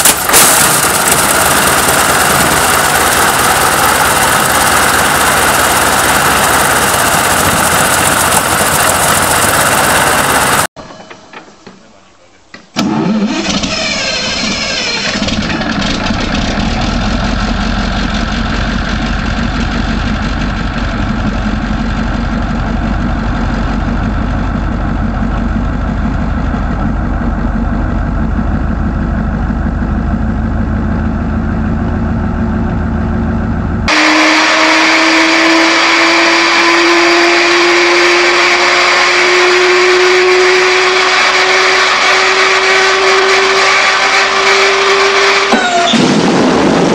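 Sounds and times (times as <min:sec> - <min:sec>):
aircraft piston engine running: 0:00.0 - 0:10.7
diesel engine starting and running: 0:00.0 - 0:10.8, 0:12.7 - 0:46.9.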